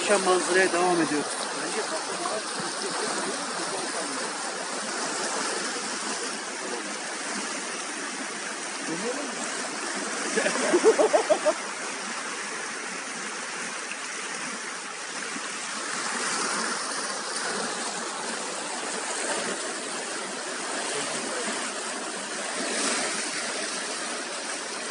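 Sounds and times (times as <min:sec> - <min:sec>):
stream rushing through rapids: 0:00.0 - 0:24.9.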